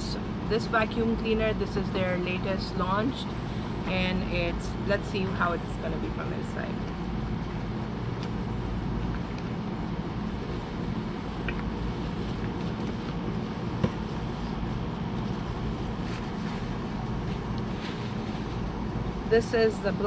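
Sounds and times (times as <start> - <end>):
low machine hum: 0.0 - 20.0
cardboard and bubble wrap crinkling: 15.2 - 18.8.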